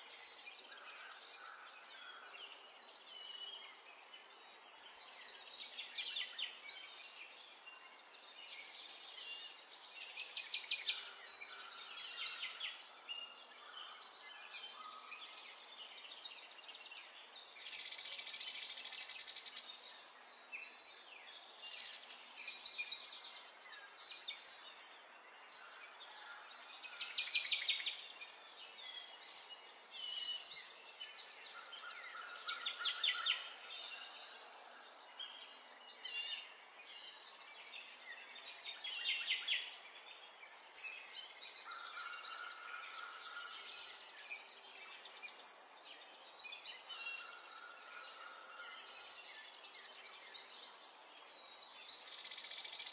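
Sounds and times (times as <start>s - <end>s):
birds singing trills and chirps: 0.0s - 52.9s.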